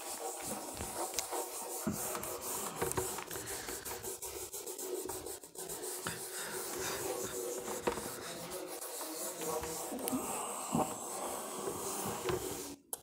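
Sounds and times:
eraser rubbing on whiteboard: 0.0s - 13.0s.

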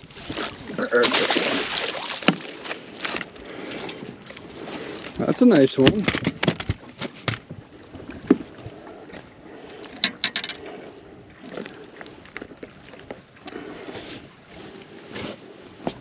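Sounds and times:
water splashing around boat: 0.0s - 16.0s
tackle clicks and knocks: 10.0s - 10.6s.

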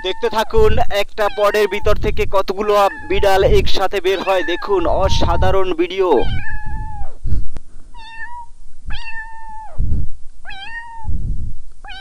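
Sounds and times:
kitten mewing: 0.0s - 7.2s, 8.0s - 9.8s, 10.5s - 11.2s
low rumble: 11.0s - 11.8s.

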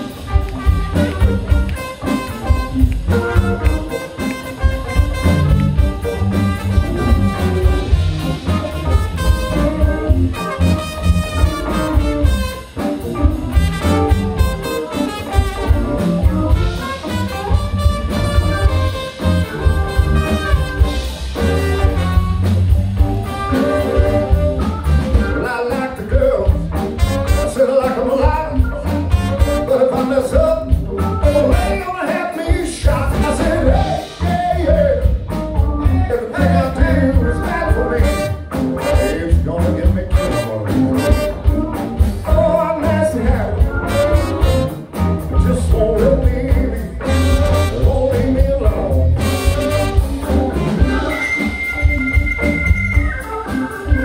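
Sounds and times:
band with horn section: 0.0s - 54.0s
drum beat: 0.0s - 54.0s
electric guitar: 0.0s - 54.0s
lead singer: 25.0s - 26.6s, 27.4s - 41.1s, 42.0s - 50.0s.

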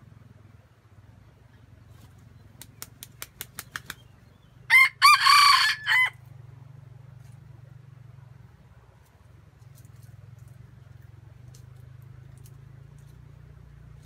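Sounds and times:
rooster wings clapping: 2.5s - 4.2s
rooster crowing: 4.7s - 6.2s.

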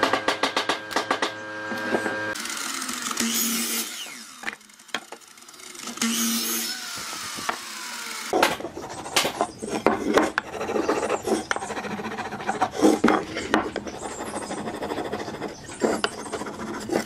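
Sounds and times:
saw blade winding down: 1.5s - 8.4s
marking gauge scratching wood: 8.3s - 17.0s.

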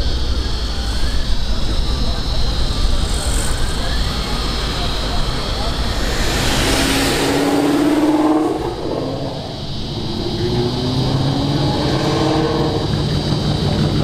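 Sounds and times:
engine revving up: 2.7s - 14.0s
car engines accelerating past: 3.3s - 14.0s.

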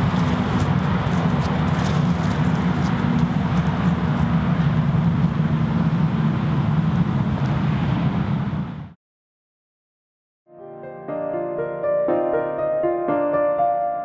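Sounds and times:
traffic rumble: 0.0s - 9.0s.

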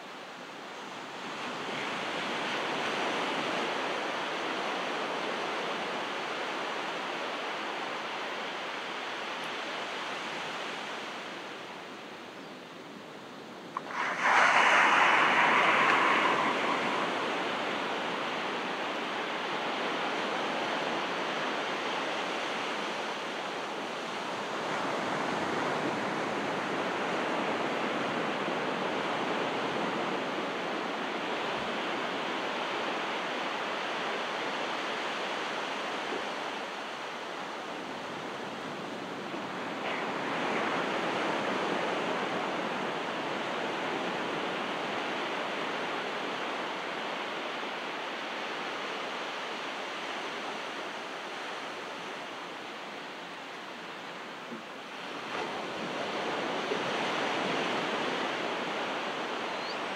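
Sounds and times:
ocean waves on rocky beach: 13.8s - 21.3s.

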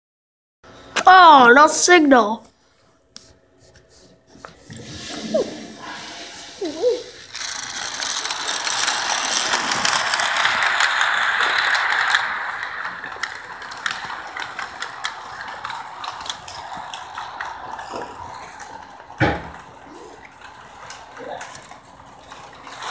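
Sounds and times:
toy train wheels clattering on rails: 7.2s - 22.9s.

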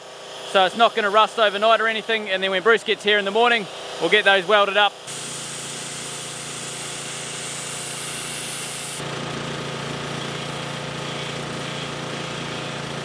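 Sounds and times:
steady machine hum: 0.0s - 13.0s
pressure water blaster hissing: 3.2s - 13.0s.

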